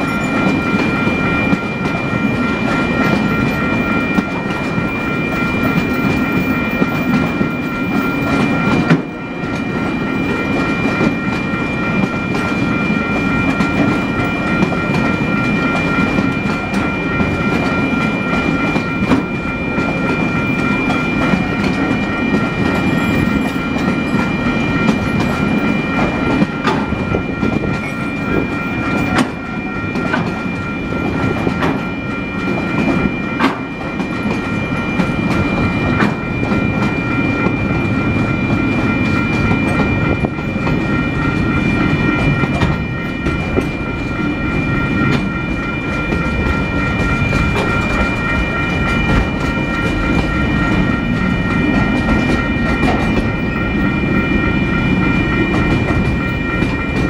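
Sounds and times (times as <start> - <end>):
high-pitched whine: 0.0 - 57.0
train rumble: 0.0 - 57.0
train wheels clicking over rail joints: 5.6 - 44.3.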